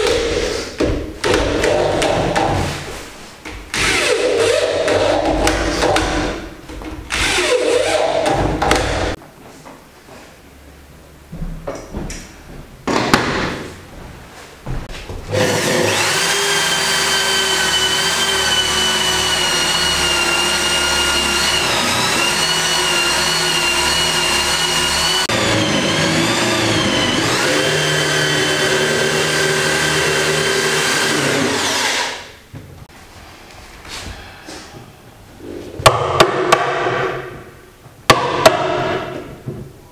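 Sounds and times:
electric drill boring into wood: 3.8 - 4.7, 7.1 - 8.0, 15.3 - 32.3.

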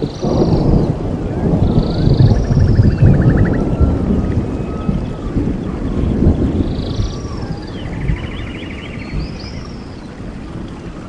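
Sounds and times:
rush of falling water: 0.0 - 11.0
birds trilling and whistling: 1.6 - 10.2.

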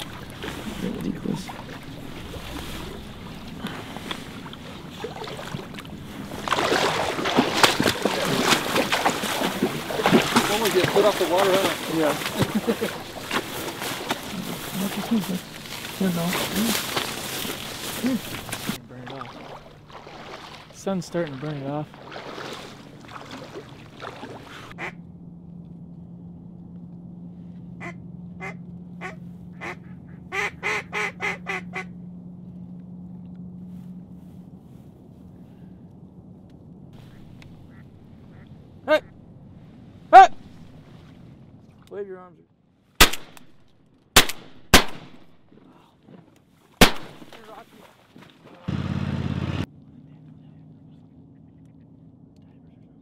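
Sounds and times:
reeds rustling underfoot: 0.0 - 24.9, 33.5 - 35.6
steady low hum: 0.0 - 46.2, 48.7 - 53.0
duck quacking: 24.8 - 25.0, 27.8 - 31.9, 37.7 - 39.1.

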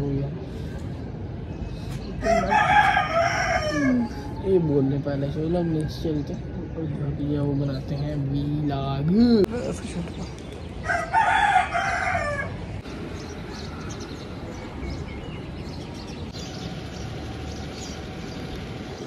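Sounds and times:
steady low background noise: 0.0 - 19.0
rooster crowing: 2.2 - 4.4, 10.8 - 12.7.

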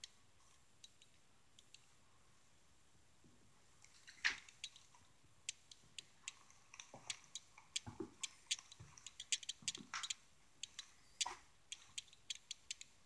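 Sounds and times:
footsteps on plywood floor: 7.8 - 9.0.

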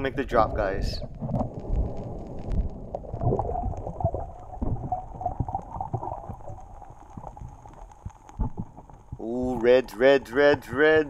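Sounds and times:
underwater rushing and gurgling: 0.0 - 9.8
small underwater pops and clicks: 1.0 - 9.2.

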